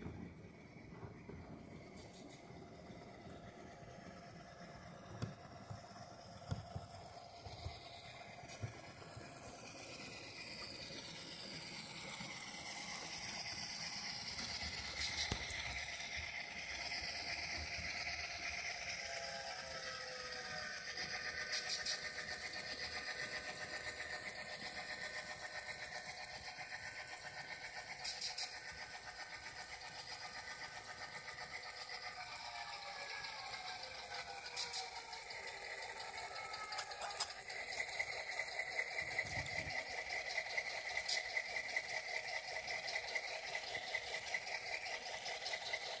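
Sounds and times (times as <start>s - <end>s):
model locomotive engine chugging: 0.0s - 46.0s.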